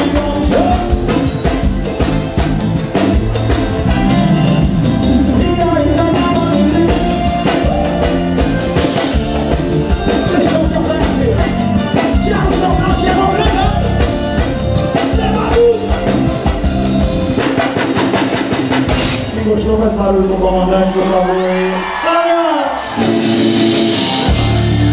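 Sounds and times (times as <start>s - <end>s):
accordion: 0.0s - 19.1s
drum kit: 0.0s - 20.0s, 22.8s - 24.9s
percussion: 0.0s - 20.0s, 22.8s - 24.9s
keyboards: 0.0s - 24.9s.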